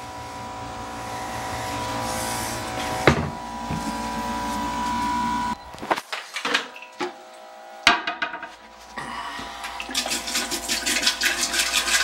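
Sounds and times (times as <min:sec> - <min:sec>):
liquid pouring into toilet bowl: 0:09.6 - 0:12.0.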